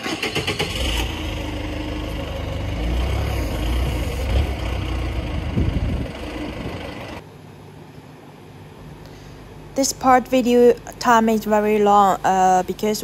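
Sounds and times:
hammer mill grinding wood: 0:00.7 - 0:07.2.

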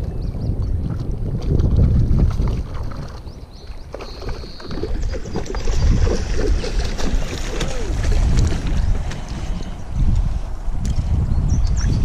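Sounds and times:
wind rumble on microphone: 0:00.0 - 0:12.0
fish splashing in water: 0:01.5 - 0:09.6.

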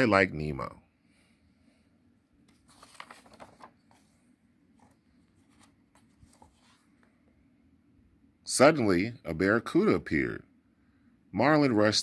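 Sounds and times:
page turning rustle: 0:02.4 - 0:07.1.

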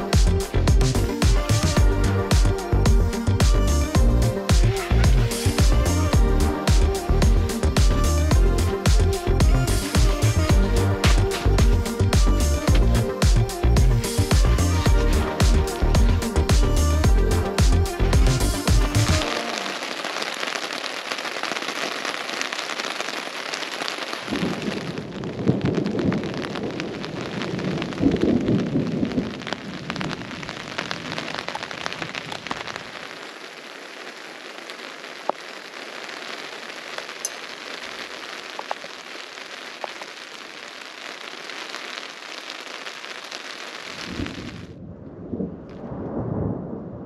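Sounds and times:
steady rain falling: 0:00.0 - 0:44.8
rolling thunder: 0:24.3 - 0:31.3, 0:44.1 - 0:47.0.

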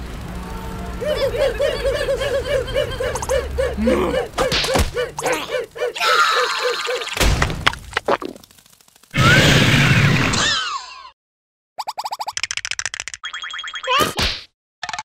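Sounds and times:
cartoon voice repeating syllables: 0:01.0 - 0:07.1
cartoon thuds and whacks: 0:04.4 - 0:05.0, 0:07.2 - 0:08.4, 0:14.0 - 0:14.5.

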